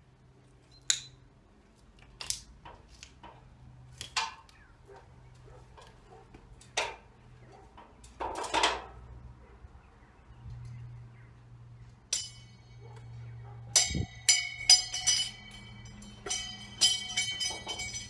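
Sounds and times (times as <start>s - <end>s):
sharp knocks and clinks: 12.1s - 18.0s.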